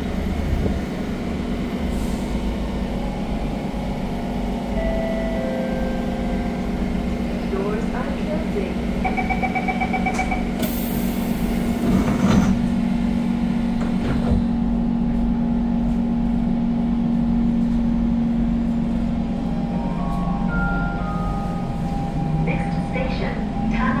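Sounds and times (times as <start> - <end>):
train traction whine rising: 0.0 - 24.0
train doors shutting: 8.2 - 12.9, 13.6 - 14.6, 19.5 - 24.0.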